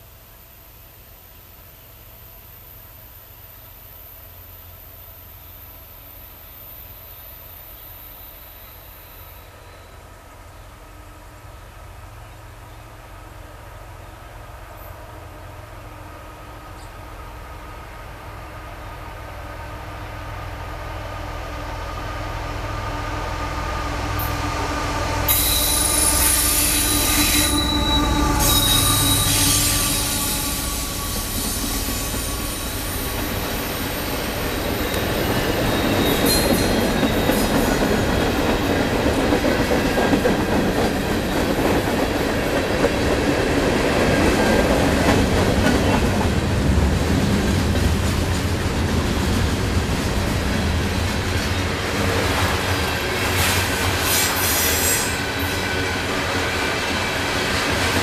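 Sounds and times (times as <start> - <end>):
diesel locomotives passing: 0.0 - 58.0
high-pitched wheel squeal: 25.3 - 37.5
freight cars rumbling: 26.9 - 58.0.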